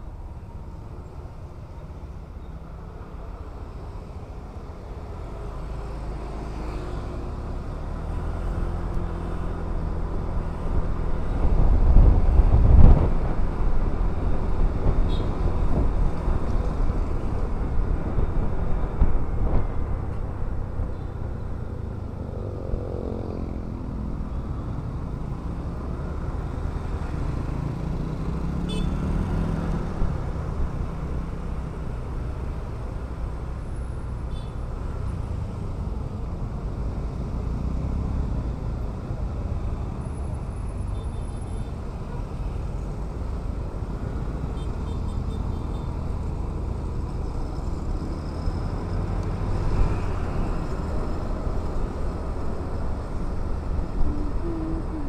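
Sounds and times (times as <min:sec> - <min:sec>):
road noise: 0:00.0 - 0:55.0
wind rush over microphone: 0:10.2 - 0:20.7.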